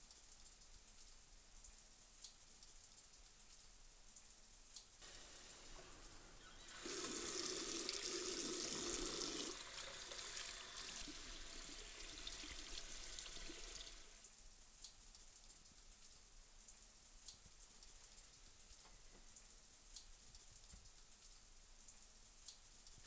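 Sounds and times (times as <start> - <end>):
tap water running into washbasin: 5.0 - 14.3.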